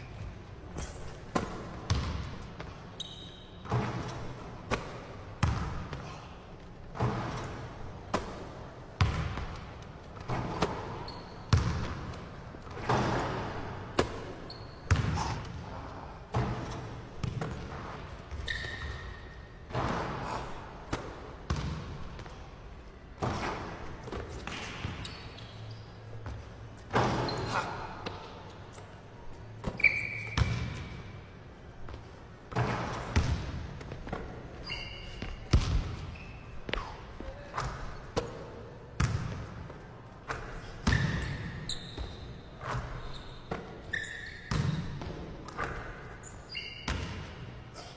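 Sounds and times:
sneakers squeaking on court: 0.0 - 22.6, 23.2 - 47.9
basketball bouncing on hardwood: 1.9 - 2.3.

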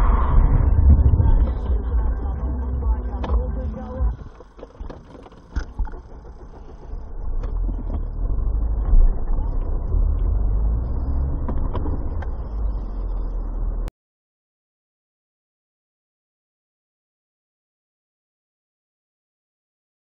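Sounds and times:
car engine and tyres rumbling: 0.0 - 13.9
faint clicks and knocks: 3.2 - 10.3.

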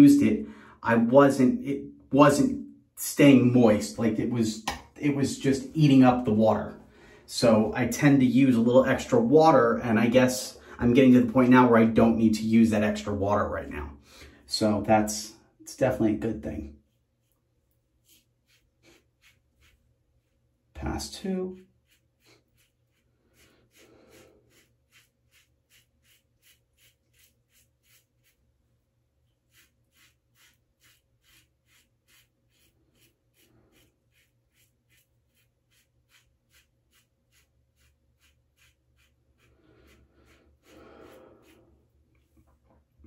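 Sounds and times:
razor scraping stubble: 16.9 - 20.5, 21.6 - 42.4.

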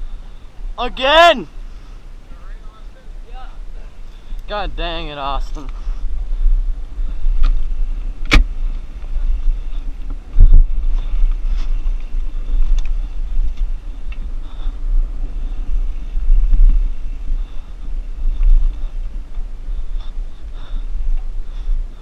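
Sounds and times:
wind rumble on microphone: 0.0 - 0.8, 1.5 - 22.0.

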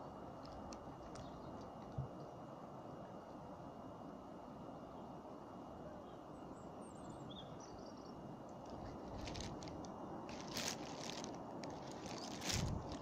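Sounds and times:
low outdoor rumble: 7.7 - 13.0
crunching and scraping clicks: 8.6 - 13.0.

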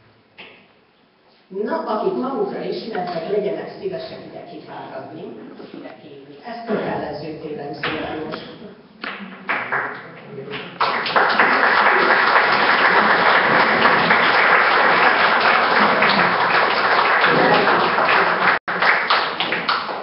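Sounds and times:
audience applauding: 9.0 - 20.0.

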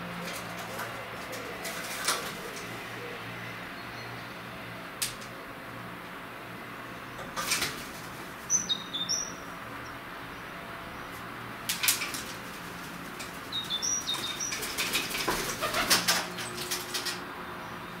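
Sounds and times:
pigeon wings flapping: 0.2 - 2.6, 7.4 - 8.3, 11.7 - 17.2
small bird chirps: 8.5 - 10.0, 13.5 - 14.6.

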